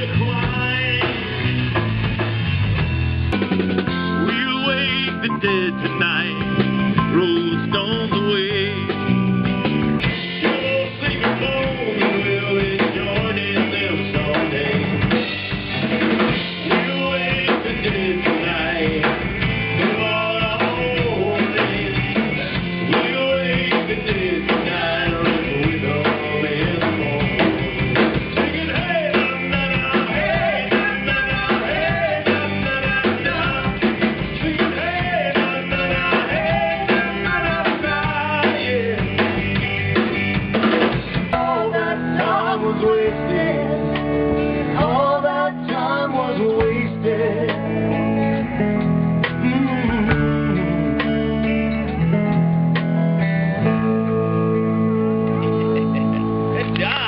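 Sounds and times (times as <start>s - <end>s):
rock band playing: 0.0s - 57.0s
person singing: 4.2s - 9.0s, 10.4s - 15.1s, 16.6s - 40.3s, 41.3s - 44.0s, 44.6s - 48.4s, 55.1s - 57.0s.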